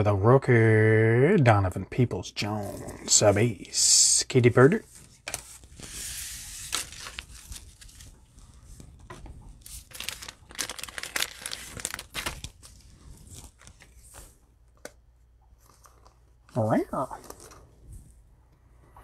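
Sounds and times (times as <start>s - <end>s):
plastic wrappers crinkling: 6.6s - 14.2s.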